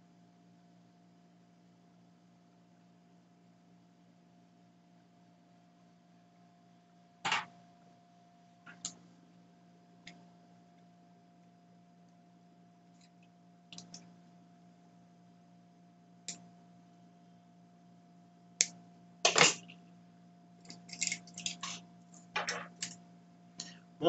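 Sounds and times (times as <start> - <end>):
faint steady hum: 0.0 - 24.0
pliers clicking and snipping wire: 20.7 - 21.8, 22.4 - 23.0.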